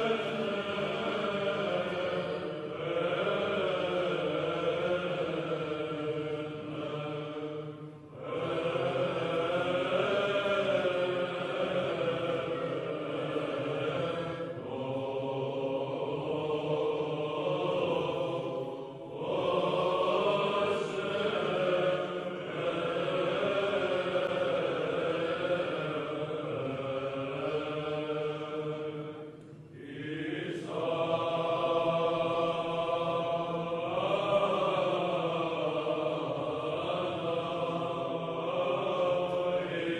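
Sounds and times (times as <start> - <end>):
held vocal drone: 0.0 - 39.9
voices chanting slow melody: 0.0 - 39.9.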